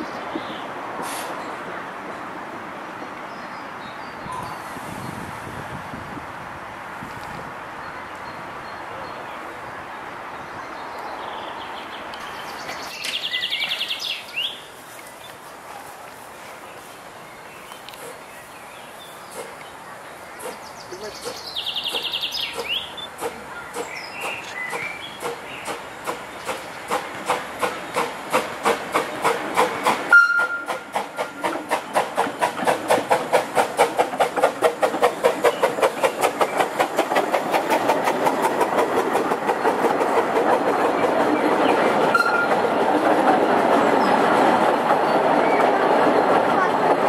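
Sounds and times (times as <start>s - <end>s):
steam locomotive chuffing: 20.4s - 47.0s.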